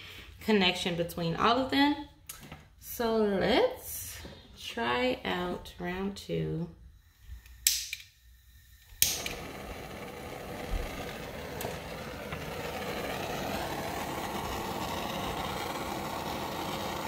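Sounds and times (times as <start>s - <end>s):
torch flame hissing: 6.9s - 17.0s
torch igniter click: 7.4s - 8.1s, 8.8s - 10.0s.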